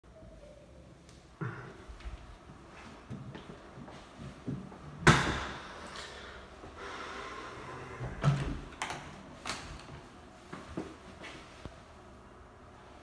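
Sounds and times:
door banging in echoing room: 5.0 - 5.7.

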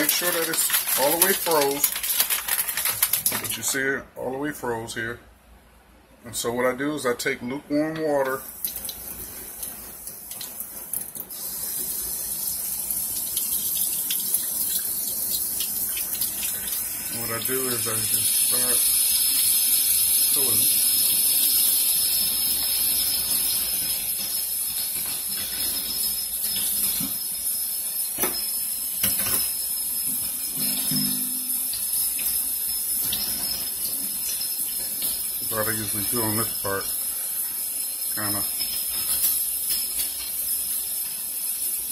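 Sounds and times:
faucet water splashing into sink: 8.4 - 12.0, 12.9 - 21.8.

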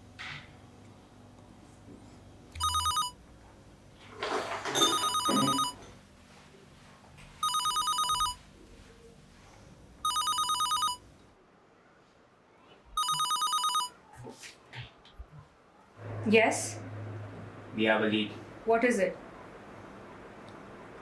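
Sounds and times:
telephone ringing: 2.6 - 3.2, 4.7 - 5.9, 7.4 - 8.4, 10.0 - 11.0, 13.0 - 14.0.

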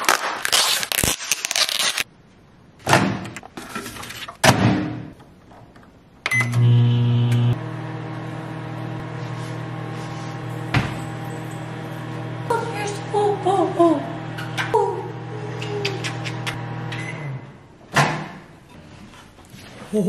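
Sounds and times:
microwave beep: 6.3 - 7.6, 16.9 - 17.4
microwave humming: 6.3 - 17.6.

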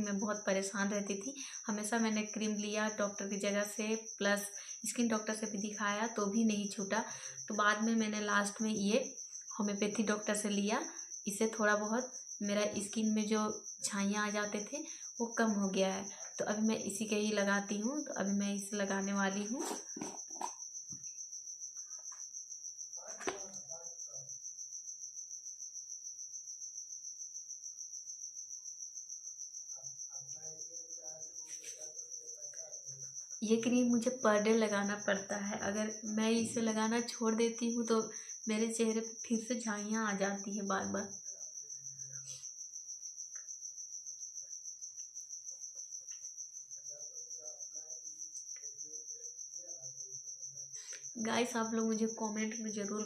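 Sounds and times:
insect trilling: 0.0 - 53.0.

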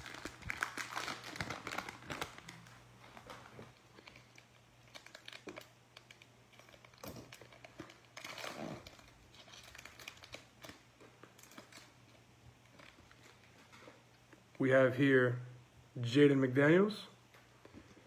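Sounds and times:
plastic wrapper crinkling: 0.0 - 14.4.

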